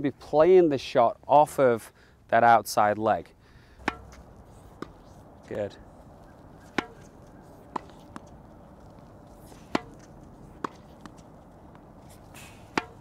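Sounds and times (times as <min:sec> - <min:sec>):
racket hitting tennis ball: 0:03.8 - 0:13.0.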